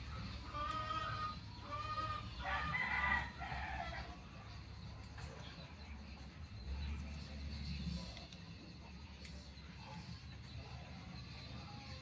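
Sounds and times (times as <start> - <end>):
chickens clucking: 0.0 - 12.0
rooster crowing: 0.5 - 4.2.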